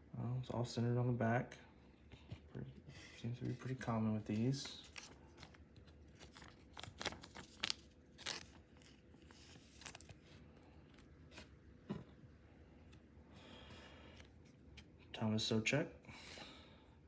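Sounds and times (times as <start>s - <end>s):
trading cards rustling and clicking: 2.2s - 10.2s.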